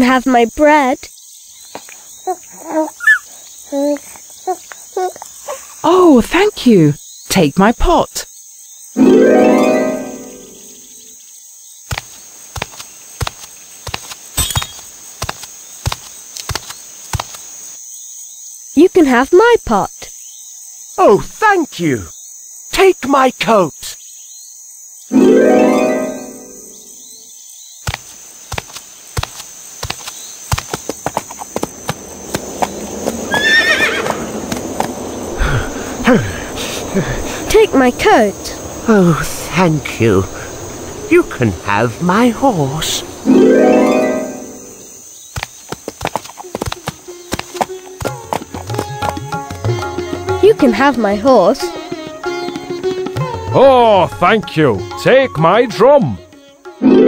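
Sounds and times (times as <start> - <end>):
crickets chirring: 0.0 - 57.0
cartoon footsteps: 11.9 - 17.4, 27.9 - 33.4, 45.3 - 50.0
horse hooves clip-clopping: 27.9 - 38.5, 45.4 - 50.7
horse whinnying: 32.6 - 36.5.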